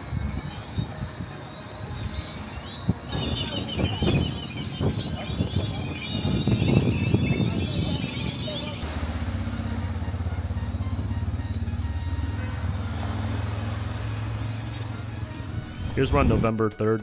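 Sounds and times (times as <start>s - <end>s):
high chirping: 0.0s - 8.9s
vehicle engine running: 8.6s - 15.7s.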